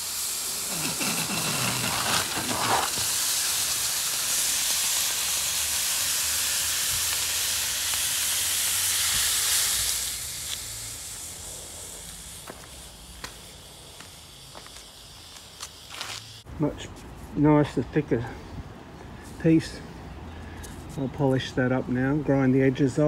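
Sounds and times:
hot metal sizzling on ice: 0.0s - 16.5s.

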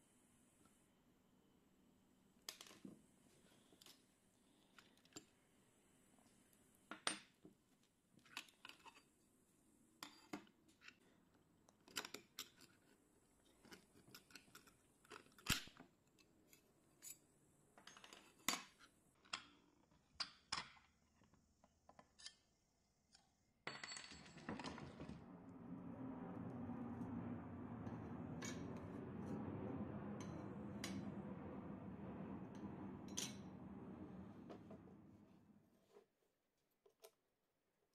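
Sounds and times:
steady low noise: 24.4s - 35.8s.

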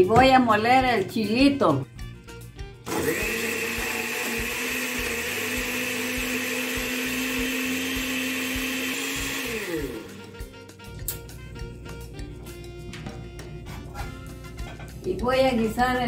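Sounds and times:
blender running: 2.7s - 11.3s.

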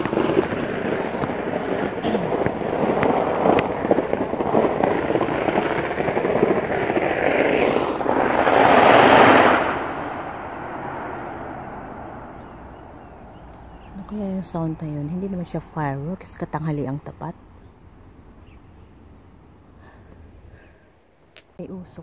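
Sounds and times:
dense crackle of rapid pops: 0.0s - 16.6s.

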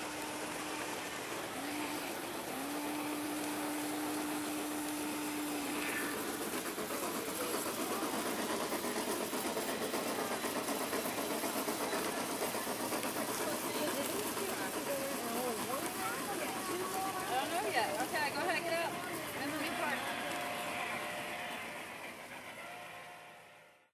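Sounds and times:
train running rhythmic beat: 0.0s - 23.9s
model train whistle: 19.4s - 23.9s.

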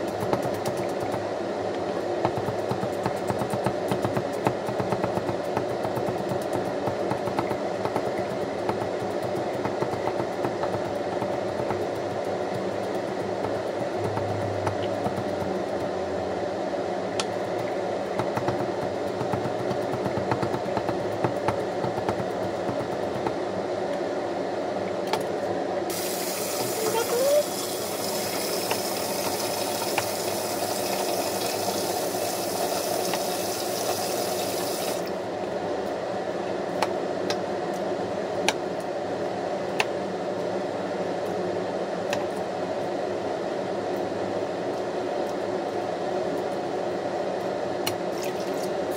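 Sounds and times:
steady hiss: 25.9s - 35.1s.

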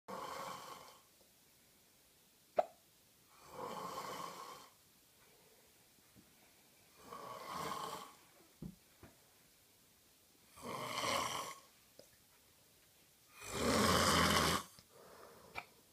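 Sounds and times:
person snoring: 0.1s - 1.0s, 3.3s - 4.8s, 7.0s - 8.2s, 10.5s - 11.7s, 13.3s - 15.6s.

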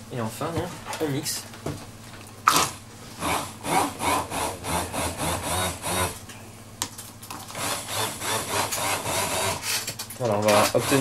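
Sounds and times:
immersion blender motor: 3.2s - 6.2s, 7.6s - 9.8s, 10.6s - 11.0s.

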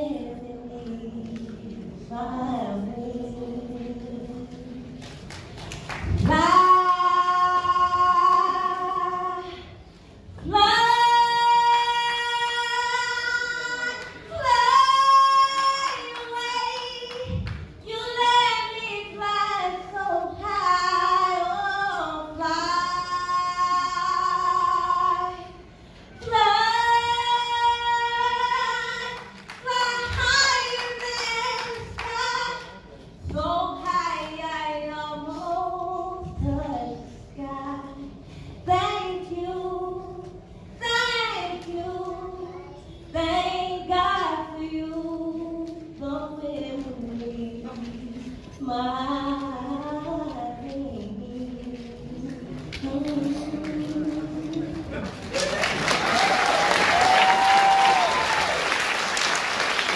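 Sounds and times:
woman singing a cappella: 0.0s - 55.3s.

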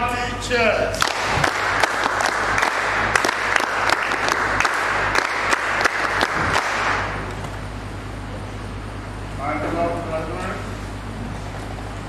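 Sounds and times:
crowd applauding: 1.0s - 7.3s.

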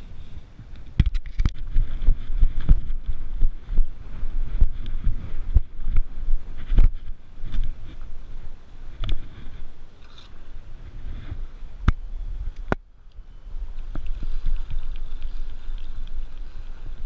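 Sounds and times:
microphone rumble: 0.0s - 12.8s
sharp clicks and rustles: 0.7s - 3.0s.

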